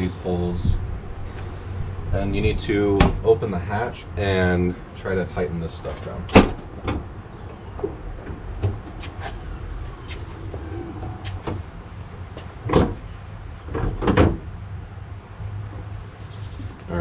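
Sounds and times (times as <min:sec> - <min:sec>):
wind rumble on microphone: 0:00.5 - 0:03.0, 0:07.0 - 0:14.4.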